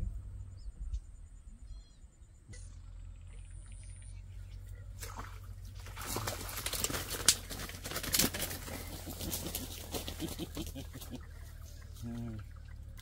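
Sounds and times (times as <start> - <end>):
dry vines crackling underfoot: 5.0 - 13.0.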